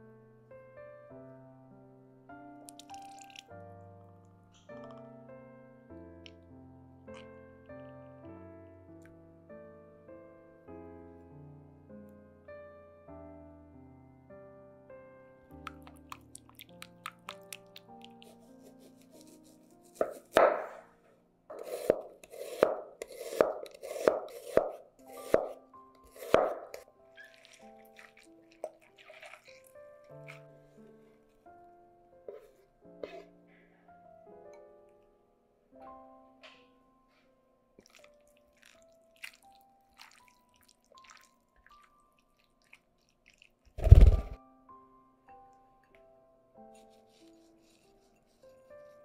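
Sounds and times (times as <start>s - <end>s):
soft background music: 0.0s - 49.0s
wet drips and squelches: 2.7s - 3.5s, 15.6s - 18.4s, 27.1s - 31.0s, 37.8s - 43.8s
knife cutting onion on board: 18.0s - 20.8s, 21.5s - 26.8s.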